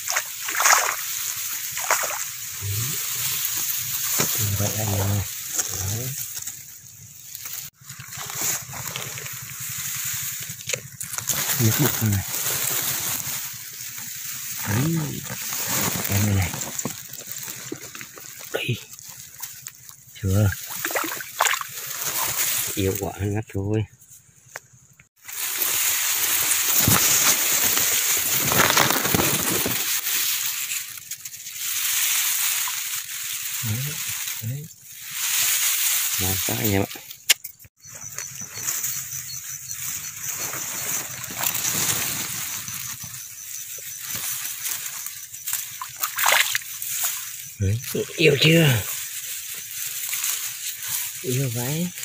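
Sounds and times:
fish thrashing in muddy water: 0.0s - 4.4s, 20.5s - 22.8s, 25.4s - 31.0s, 45.5s - 47.4s
shallow water sloshing: 0.0s - 4.4s, 7.4s - 22.8s, 43.9s - 47.6s
rice plants rustling: 0.0s - 23.3s, 25.1s - 52.0s.

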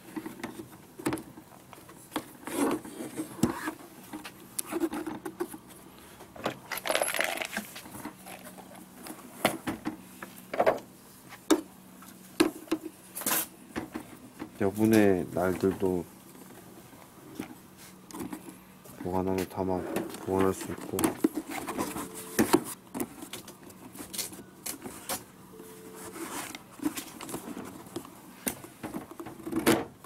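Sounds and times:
tool parts clicking and clattering: 6.6s - 8.6s.

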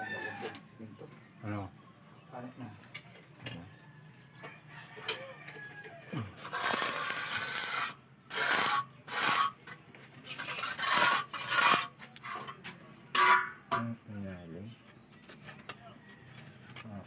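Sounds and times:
hand tool scraping cement: 6.4s - 13.5s.

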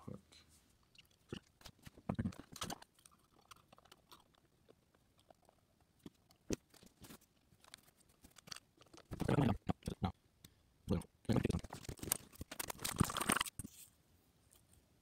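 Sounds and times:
handling clicks and rustles: 11.5s - 13.9s.

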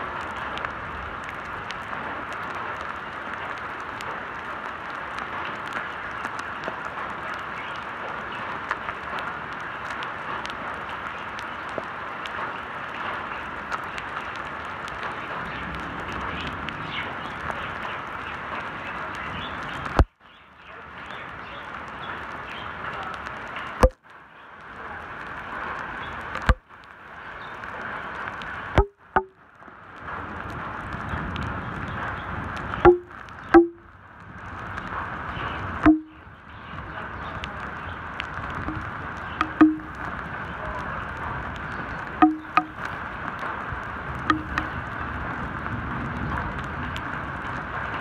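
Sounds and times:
heavy rain on wet asphalt: 0.0s - 48.0s
sharp knock: 28.8s - 29.3s, 32.9s - 33.8s, 35.9s - 36.2s, 42.2s - 42.8s.

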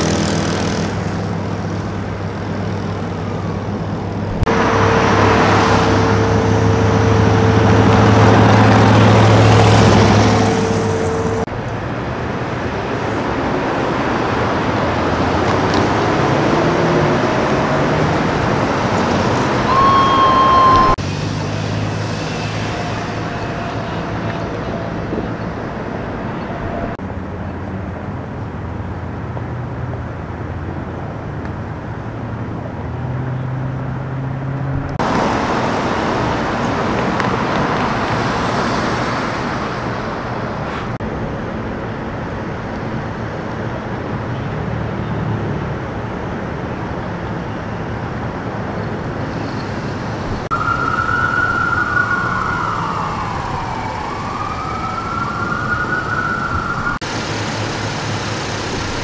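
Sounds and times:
heavy vehicle engines idling: 0.0s - 29.2s
road noise: 0.0s - 59.0s
emergency siren wailing: 4.4s - 11.5s, 16.0s - 27.0s, 50.4s - 57.0s.

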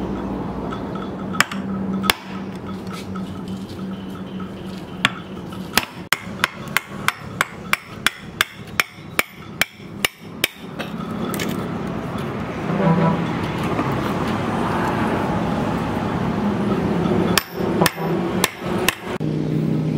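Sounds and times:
chisel striking wood: 5.0s - 11.5s, 17.3s - 19.2s.

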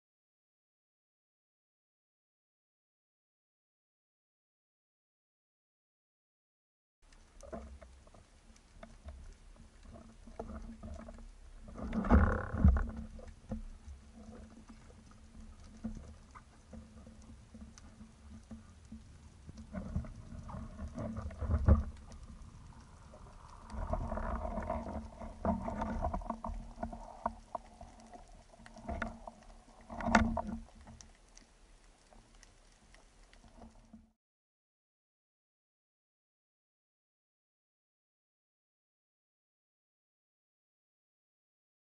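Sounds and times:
muffled underwater water movement: 7.0s - 34.2s.

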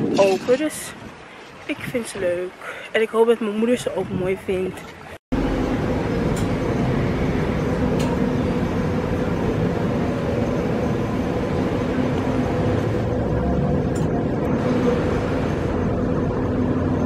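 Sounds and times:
low rumble: 5.3s - 17.0s
mechanical hum: 5.4s - 17.0s.

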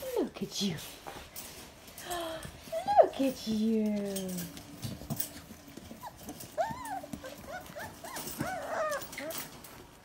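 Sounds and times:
puppies whining and yelping: 4.8s - 10.0s.

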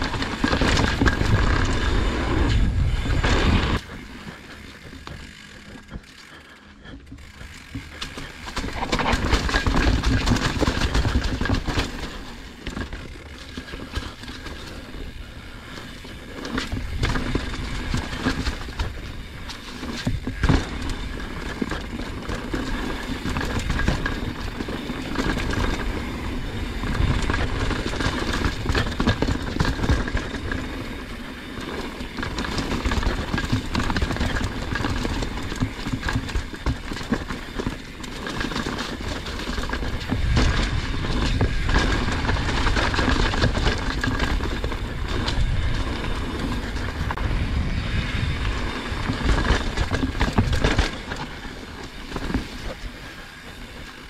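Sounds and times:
wind buffeting microphone: 0.0s - 6.0s, 39.7s - 53.8s
bike chain and frame rattling: 0.0s - 54.0s
tyres rolling over dirt and rocks: 0.0s - 54.0s.

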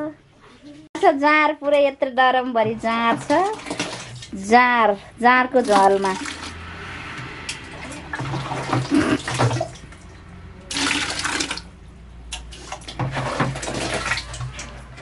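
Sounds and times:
wet mash sloshing: 2.6s - 15.0s
splash: 3.1s - 4.4s, 5.6s - 15.0s.

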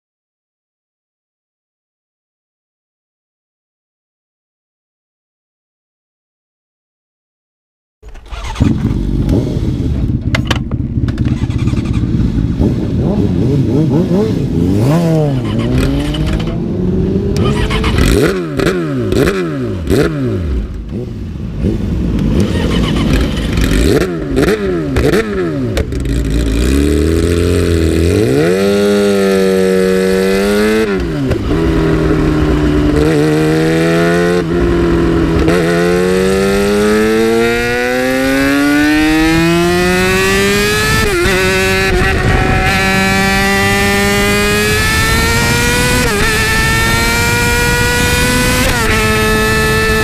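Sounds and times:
motorcycle engine accelerating: 8.0s - 50.0s
wind on microphone: 39.2s - 50.0s.

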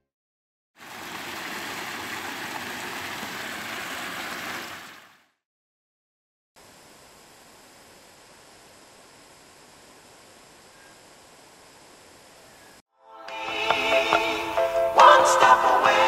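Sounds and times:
fountain water splashing: 0.8s - 5.2s
faint hiss: 6.6s - 12.8s.

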